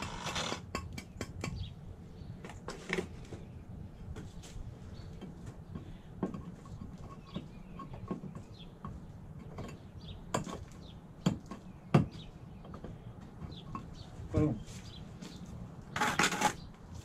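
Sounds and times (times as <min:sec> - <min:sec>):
stone panel knocking and clacking: 0:00.6 - 0:01.7, 0:05.2 - 0:14.0.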